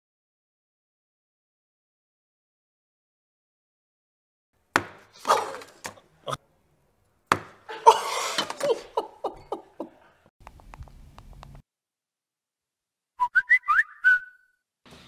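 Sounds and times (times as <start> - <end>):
men laughing: 5.2 - 6.4, 7.7 - 10.3.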